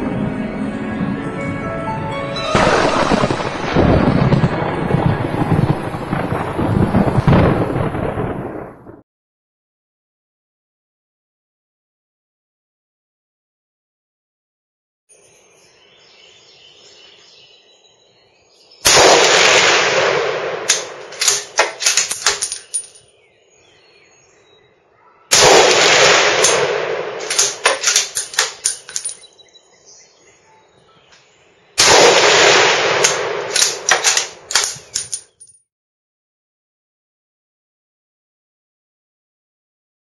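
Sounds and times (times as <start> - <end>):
rifle shots: 18.8 - 23.0, 25.3 - 29.2, 31.8 - 35.2
rolling echo with sharp cracks: 18.9 - 22.4, 25.4 - 28.7, 31.8 - 34.8.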